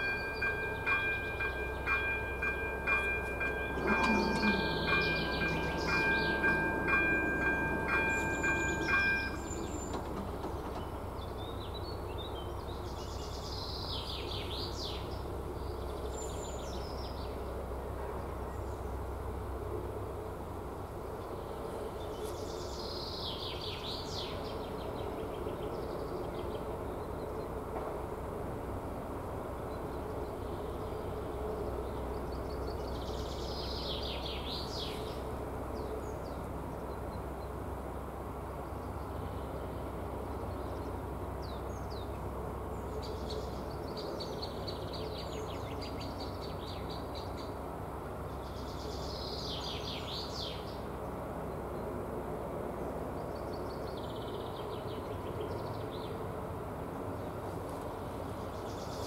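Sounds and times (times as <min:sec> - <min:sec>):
songbird singing: 0:00.0 - 0:17.4, 0:29.6 - 0:37.6, 0:48.2 - 0:51.9.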